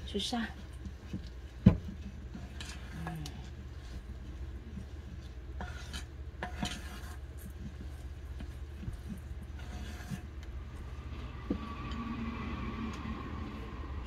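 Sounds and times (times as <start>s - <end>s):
hand kneading dough: 0.0s - 14.0s
steady low hum: 0.0s - 14.0s.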